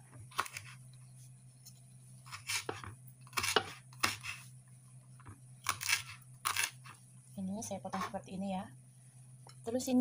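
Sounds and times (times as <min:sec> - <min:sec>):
knife slicing chillies: 0:00.3 - 0:00.8, 0:02.3 - 0:04.5, 0:05.6 - 0:06.9.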